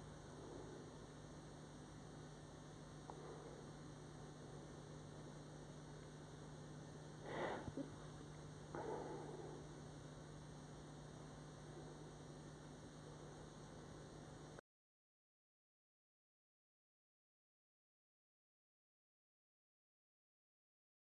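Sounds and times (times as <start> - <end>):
faint electrical mains hum: 0.0 - 14.6.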